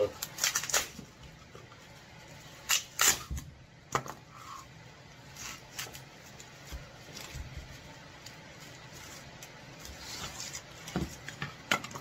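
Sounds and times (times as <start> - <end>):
foam crackling and scraping: 5.2 - 11.4.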